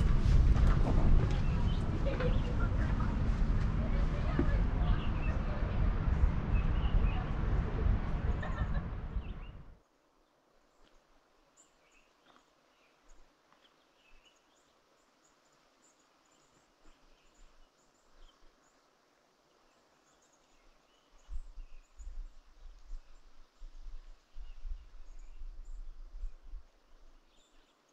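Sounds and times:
wind buffeting microphone: 0.0 - 9.8, 21.2 - 27.1.

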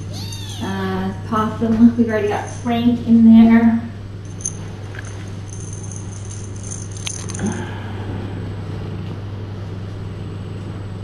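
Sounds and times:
steady low hum: 0.0 - 11.0
light metallic jingling: 4.2 - 7.6.

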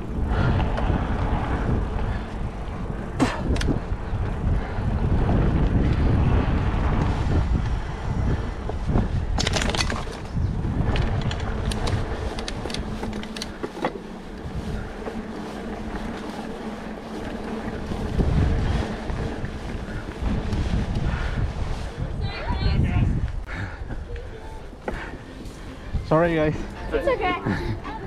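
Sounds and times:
bike clicks and rattles: 0.0 - 21.9
bike tyres rumbling on dirt trail: 0.0 - 28.0
wind buffeting microphone: 0.0 - 28.0.

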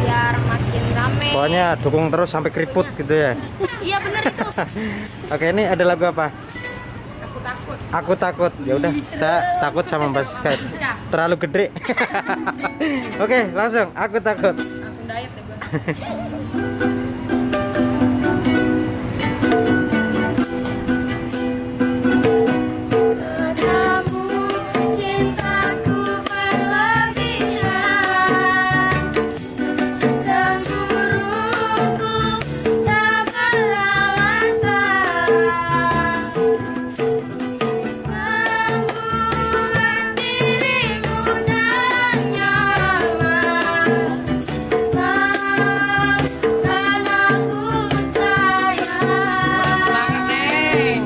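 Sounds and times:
hand percussion: 3.6 - 51.0
ukulele strumming: 8.8 - 51.0
young women singing: 22.9 - 51.0.

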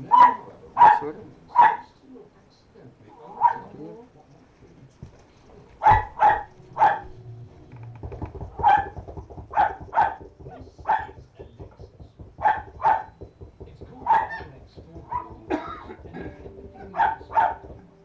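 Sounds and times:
puppies yapping: 5.8 - 7.2, 8.6 - 10.3, 16.9 - 17.6.

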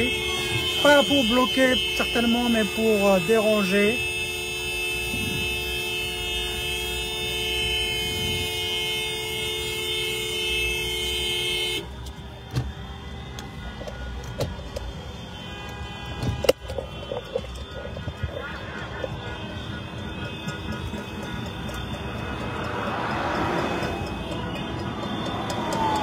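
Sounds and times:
traffic noise: 0.0 - 26.0
small clicks and knocks: 16.2 - 17.7.

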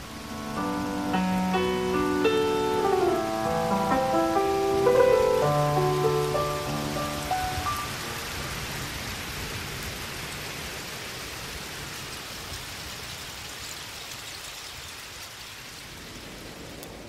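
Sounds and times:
background music: 0.0 - 8.1.

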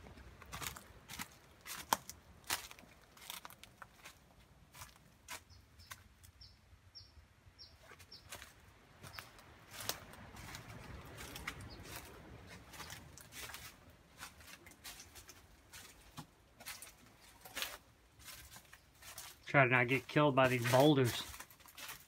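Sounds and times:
footsteps crunching on leaves: 0.0 - 6.3, 7.8 - 22.0
small bird chirping: 5.5 - 8.4.

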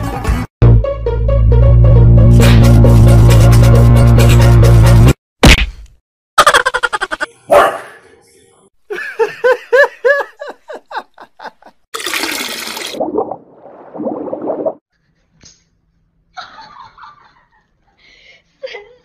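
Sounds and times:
dog barking: 7.5 - 8.0
watery whoosh sound effect: 12.7 - 14.8.

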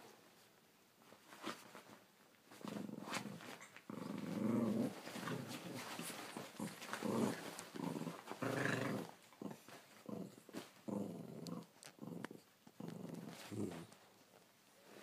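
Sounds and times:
small dogs growling: 2.5 - 14.0.

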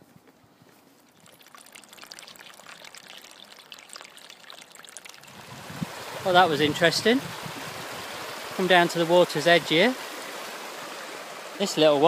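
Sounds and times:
stream trickling over rocks: 1.0 - 12.0.

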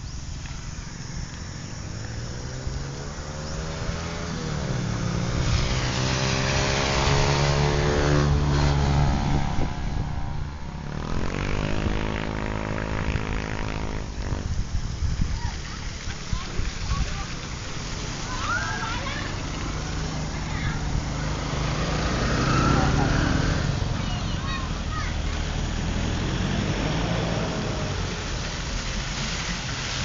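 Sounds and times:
tyre hiss on wet road: 0.0 - 30.0
truck accelerating past: 1.8 - 14.6, 16.1 - 30.0
vehicle engine rising in pitch: 1.8 - 14.6, 18.2 - 24.2.

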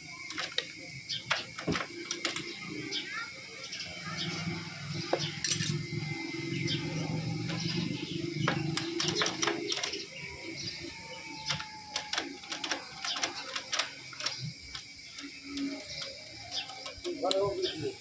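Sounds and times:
steel tool clicking on engine parts: 0.2 - 2.6, 5.2 - 10.2, 11.4 - 17.7.

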